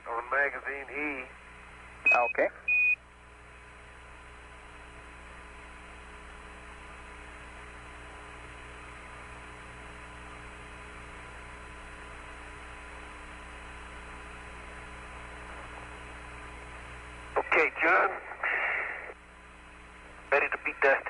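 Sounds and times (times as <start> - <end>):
radio channel hiss and hum: 0.0 - 21.0.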